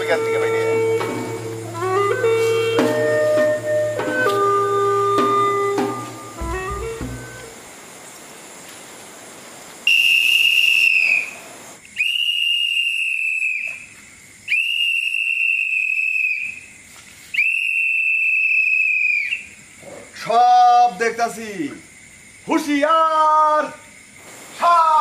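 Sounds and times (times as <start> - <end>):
whistle long blasts: 0.0 - 7.6, 9.8 - 19.6.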